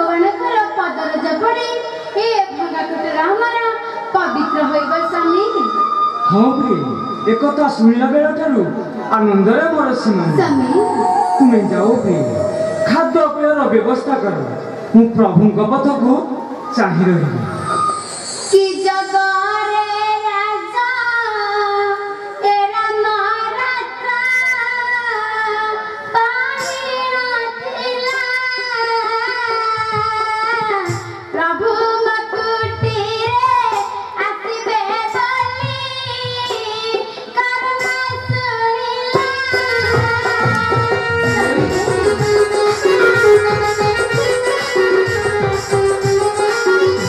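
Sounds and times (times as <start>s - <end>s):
girl singing in a high voice: 18.5s - 42.9s.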